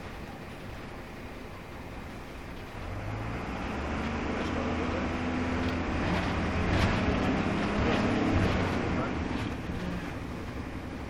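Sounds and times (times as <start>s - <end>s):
bus engine droning: 0.0s - 11.0s
bus body clicks and rattles: 5.5s - 11.0s.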